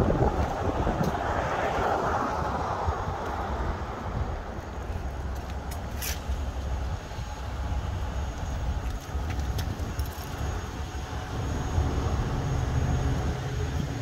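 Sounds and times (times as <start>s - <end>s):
wind on microphone: 0.0s - 5.4s
road traffic rumble: 0.0s - 14.0s.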